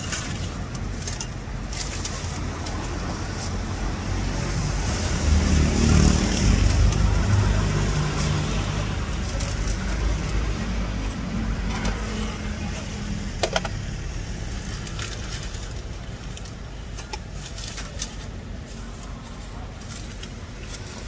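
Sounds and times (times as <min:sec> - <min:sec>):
traffic noise: 0:00.0 - 0:21.0
vehicle engine rumbling past: 0:02.8 - 0:13.3.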